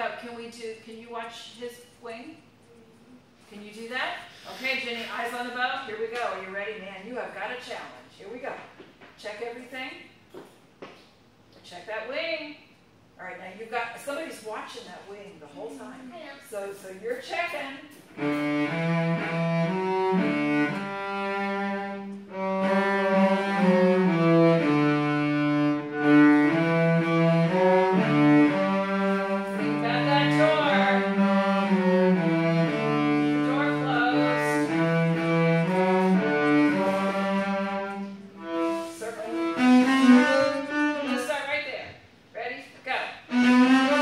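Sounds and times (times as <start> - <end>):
cellos bowing a melody: 17.9 - 41.5, 43.2 - 44.0.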